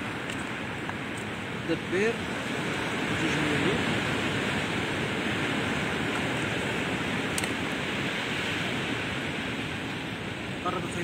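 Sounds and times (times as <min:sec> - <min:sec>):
sea surf rushing: 0:00.0 - 0:11.0.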